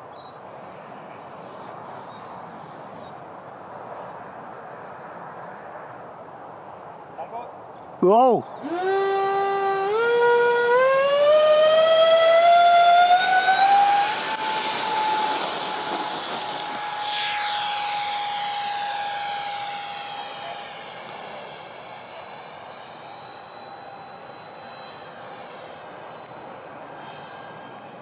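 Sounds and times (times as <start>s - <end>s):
model jet fans whining: 8.6s - 28.0s.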